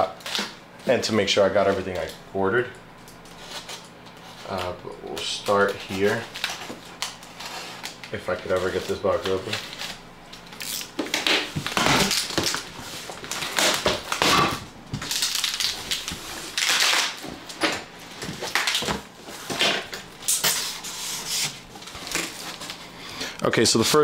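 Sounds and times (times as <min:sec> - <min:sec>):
cardboard box being torn open: 0:10.6 - 0:12.6.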